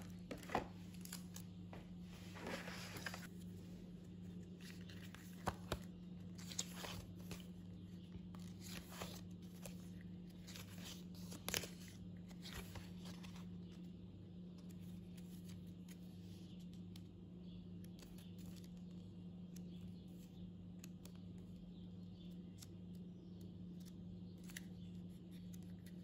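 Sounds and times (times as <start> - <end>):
booklet pages rustling: 0.0 - 17.0
steady low hum: 0.0 - 26.0.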